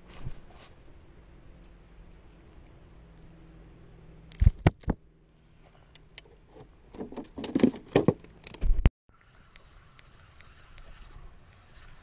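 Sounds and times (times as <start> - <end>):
rustling: 0.0 - 1.0.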